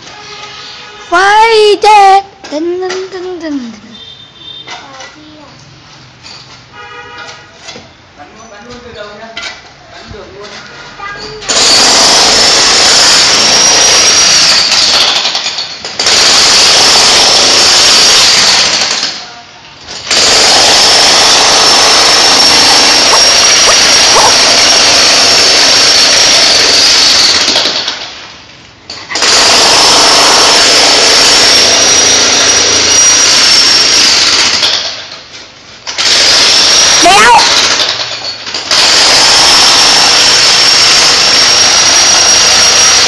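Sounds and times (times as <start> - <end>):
power tool whining: 20.2 - 26.2.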